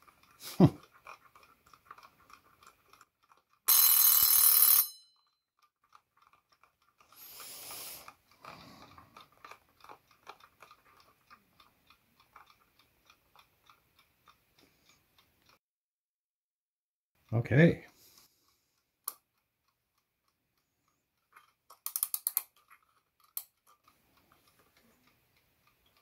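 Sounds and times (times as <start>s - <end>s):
clock ticking: 0.0s - 15.6s, 17.2s - 26.0s
alarm clock bell ringing: 3.7s - 5.4s.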